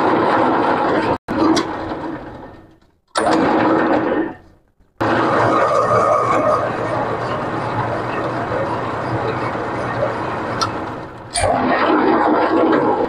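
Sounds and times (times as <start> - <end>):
metal lathe cutting thread: 5.0 - 13.0.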